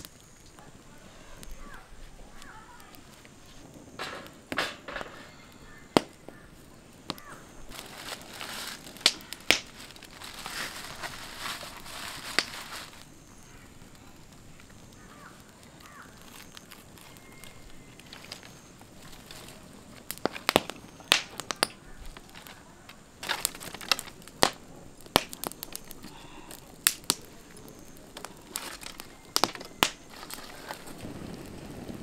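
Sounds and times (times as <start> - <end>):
aluminium foil crinkling: 0.0 - 32.0
wire grill grate clicking: 8.4 - 13.0, 19.2 - 30.9.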